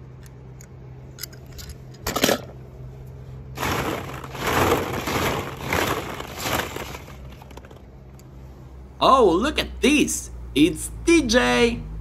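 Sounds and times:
toys crunching and scraping: 3.6 - 8.2.

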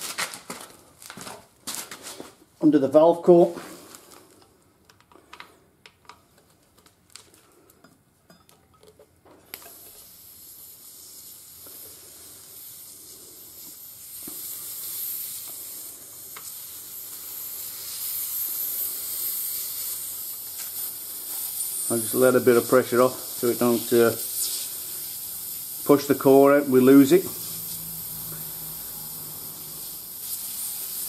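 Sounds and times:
air hissing from tyre: 9.6 - 31.0.

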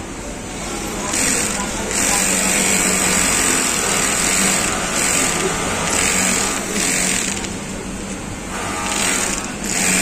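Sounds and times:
sewing machine stitching: 1.1 - 7.5, 8.6 - 10.0.

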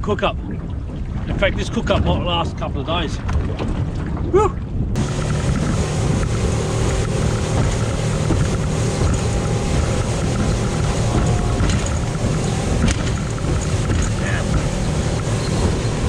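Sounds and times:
outboard motor drone: 0.0 - 16.0
water rushing off a hull: 0.0 - 16.0
wind buffeting microphone: 0.0 - 16.0.

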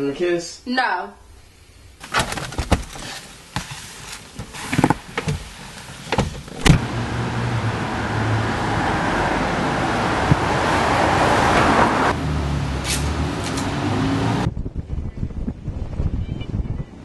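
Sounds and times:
car engine starting and running: 4.8 - 14.5
car interior clicks and knocks: 6.0 - 6.9.

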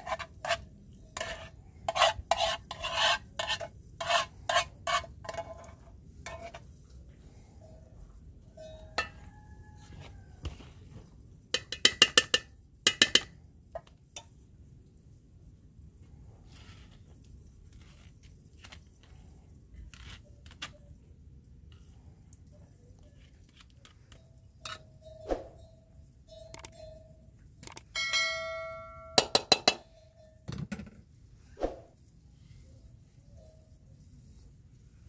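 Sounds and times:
metal spoon scraping pots: 0.0 - 6.7, 8.8 - 10.1, 11.6 - 13.9, 23.3 - 25.6, 28.6 - 30.8
ringing metallic clang: 28.0 - 30.8.

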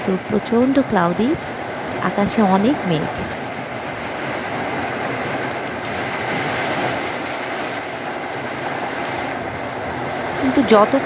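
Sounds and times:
strong wind: 0.0 - 11.0
rain falling on concrete roof: 3.3 - 11.0.

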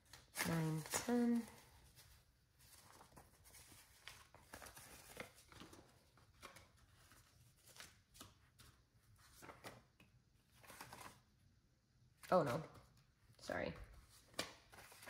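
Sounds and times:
banknotes rustling while counted: 0.1 - 11.3.

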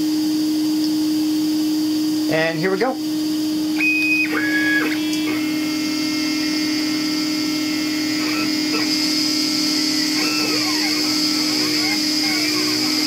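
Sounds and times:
vacuum table hum: 0.0 - 13.0
stepper motors whining: 3.5 - 13.0.

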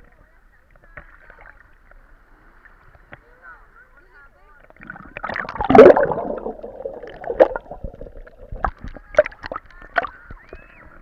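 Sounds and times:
water gurgling and sloshing: 4.4 - 11.0.

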